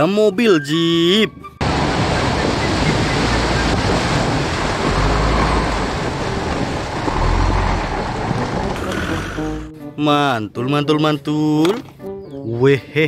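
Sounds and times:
splashing water: 0:01.6 - 0:09.5
low engine rumble: 0:01.6 - 0:09.7.

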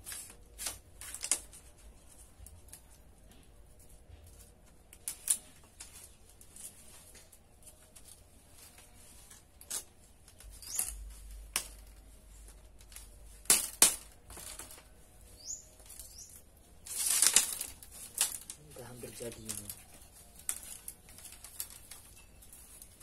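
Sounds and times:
bamboo strips clicking and knocking: 0:00.0 - 0:23.0
high bird chirps: 0:15.3 - 0:16.4.

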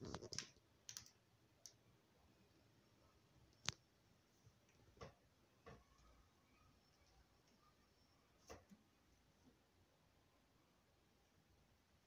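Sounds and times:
faint sharp clicks and taps: 0:03.5 - 0:03.9, 0:04.6 - 0:06.2, 0:08.4 - 0:09.6.

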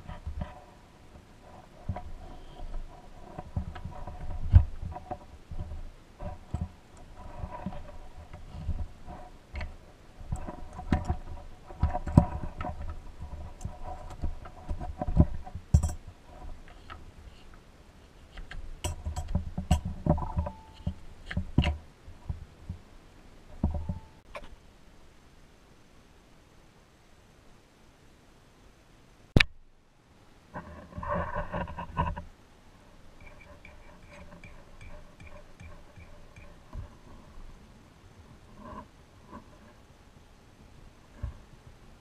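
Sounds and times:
soft knocks and thumps: 0:23.5 - 0:24.5.

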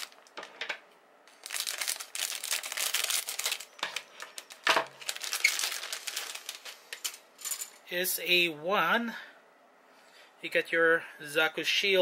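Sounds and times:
plastic bags crinkling: 0:00.0 - 0:07.7.

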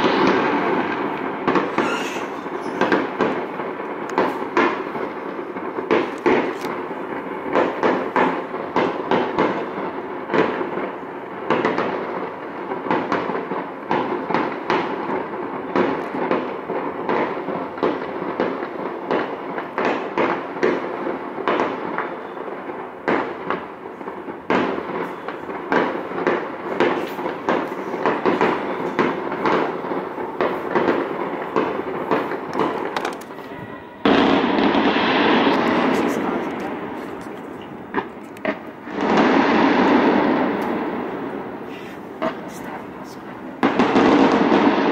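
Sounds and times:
fireworks bangs and crackling: 0:00.0 - 0:44.9.

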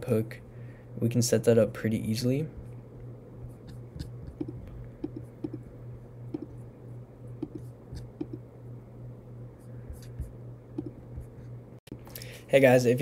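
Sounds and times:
low steady hum: 0:00.0 - 0:13.0
computer mouse clicks: 0:03.6 - 0:05.6, 0:07.4 - 0:08.4, 0:10.8 - 0:11.0.

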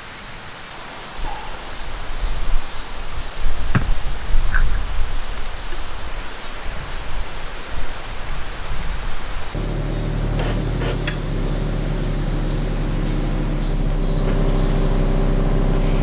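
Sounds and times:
rushing outdoor ambience: 0:00.0 - 0:16.0
low rumble: 0:09.6 - 0:16.0.

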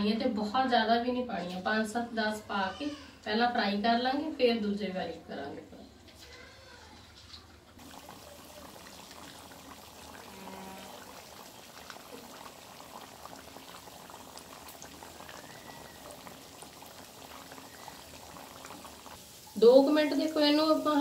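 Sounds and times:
food sizzling in hot oil: 0:07.8 - 0:21.0.

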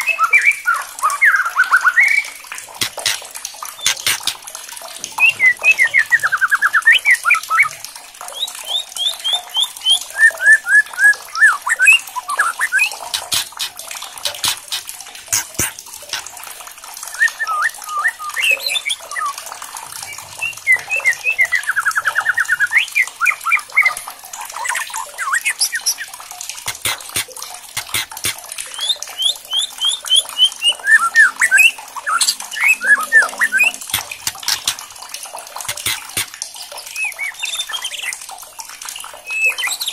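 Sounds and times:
sharp clicks: 0:02.8 - 0:04.4, 0:13.0 - 0:16.3, 0:26.7 - 0:28.4, 0:33.8 - 0:34.9, 0:35.6 - 0:36.3
bird singing fast trills: 0:27.8 - 0:34.8.

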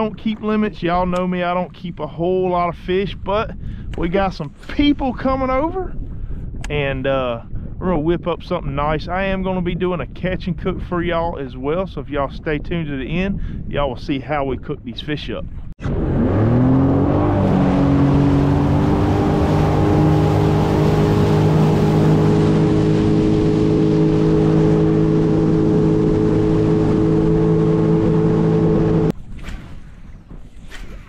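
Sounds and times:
water rushing past hull: 0:15.4 - 0:31.0
watercraft engine speeding up: 0:15.8 - 0:31.0.

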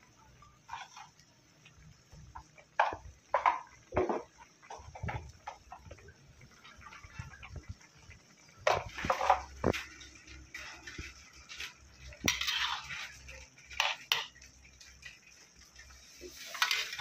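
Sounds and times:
sauce popping in a wok: 0:00.0 - 0:17.0
scraping in a wok: 0:00.6 - 0:01.3, 0:08.7 - 0:15.2, 0:15.9 - 0:17.0.

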